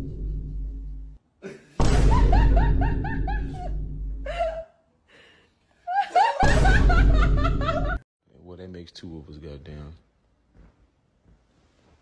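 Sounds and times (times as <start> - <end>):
person laughing hard: 2.1 - 4.6, 5.9 - 8.0.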